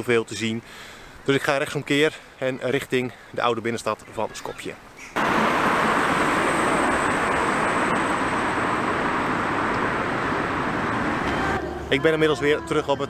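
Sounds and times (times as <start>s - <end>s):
cars driving along street: 5.2s - 12.5s.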